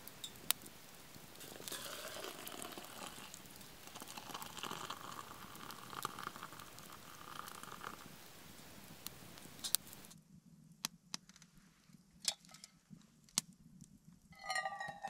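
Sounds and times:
hot water hissing into a mug: 0:00.0 - 0:10.1.

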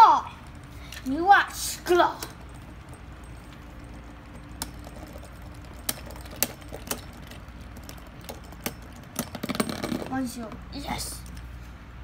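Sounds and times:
low steady hum: 0:00.0 - 0:12.0
spinning tops clacking together: 0:01.8 - 0:10.3.

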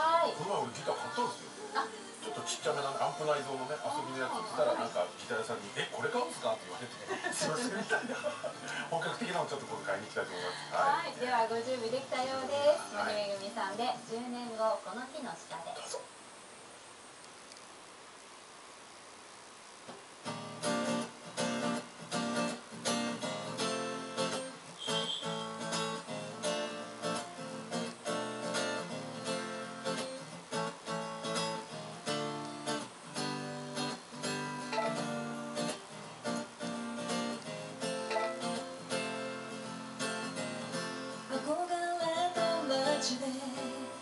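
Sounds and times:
faint hiss: 0:00.0 - 0:44.0
acoustic guitar strumming: 0:02.2 - 0:05.5, 0:20.2 - 0:44.0.

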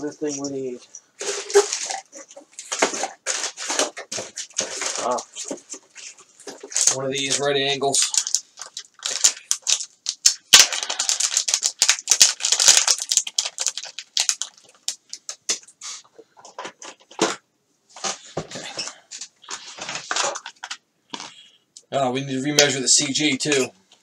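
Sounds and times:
packaging crinkling and rustling: 0:00.0 - 0:17.4, 0:18.0 - 0:21.4.

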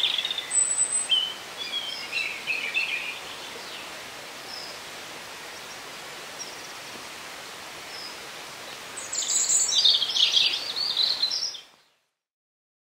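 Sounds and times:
songbird singing high notes: 0:00.0 - 0:03.8
background hiss: 0:00.0 - 0:12.1.

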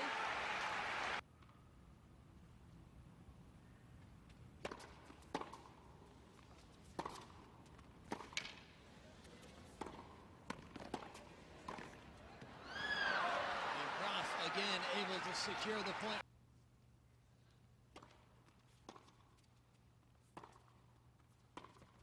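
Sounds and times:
tennis racquet hits: 0:04.6 - 0:05.8, 0:06.8 - 0:08.7, 0:09.4 - 0:12.5, 0:20.2 - 0:22.0
hushed indoor crowd: 0:12.5 - 0:16.2
ball bounces: 0:21.5 - 0:22.0.

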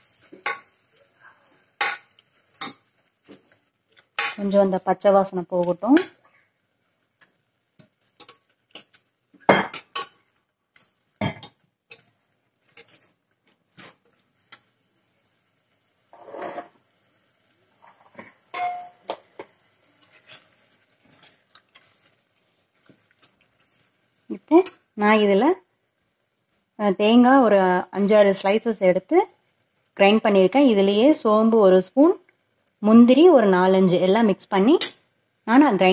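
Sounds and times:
spoon scraping in a metal pot: 0:16.1 - 0:16.8, 0:17.8 - 0:19.0, 0:20.0 - 0:21.4.

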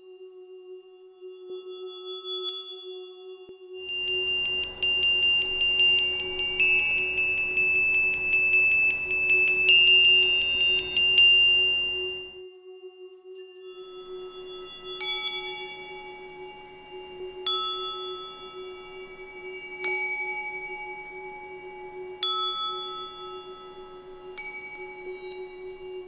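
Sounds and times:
steady low tone: 0:03.8 - 0:12.4, 0:13.8 - 0:26.0
metal bowls struck with mallet: 0:03.9 - 0:12.3, 0:14.0 - 0:26.0.

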